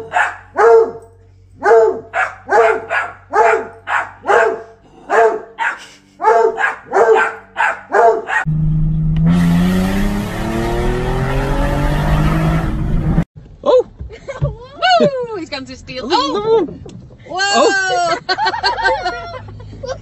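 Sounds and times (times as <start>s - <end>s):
dog barking: 0.0s - 1.0s, 1.6s - 8.5s
wind and road noise: 0.0s - 20.0s
car engine revving: 8.3s - 13.3s.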